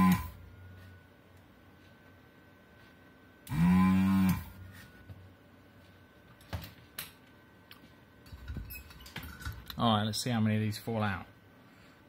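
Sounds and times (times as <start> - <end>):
desoldering pump buzz: 0.0 - 0.6, 3.4 - 4.9.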